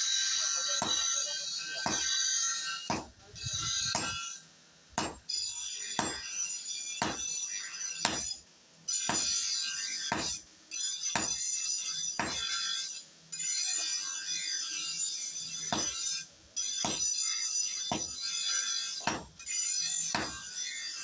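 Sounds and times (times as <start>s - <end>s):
hammer striking hot steel on anvil: 0.6s - 4.4s, 5.0s - 8.4s, 9.0s - 10.4s, 11.0s - 13.0s, 15.6s - 19.5s, 20.1s - 20.8s.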